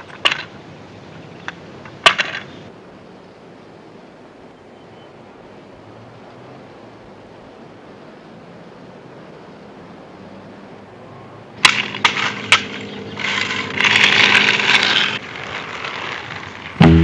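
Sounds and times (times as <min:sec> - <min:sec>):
skateboard clacking on concrete: 0:00.0 - 0:00.5, 0:01.4 - 0:02.6, 0:11.6 - 0:17.0
skateboard wheels rolling: 0:00.0 - 0:02.8, 0:11.6 - 0:17.0.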